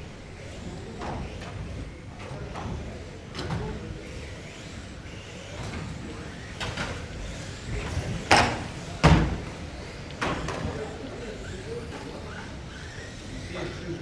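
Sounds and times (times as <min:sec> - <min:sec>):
rc cars hitting barriers: 0:00.3 - 0:11.0.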